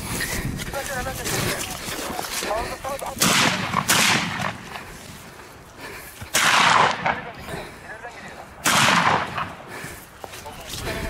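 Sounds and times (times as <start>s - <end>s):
gunshots: 3.2s - 4.7s, 6.3s - 7.4s, 8.6s - 9.6s.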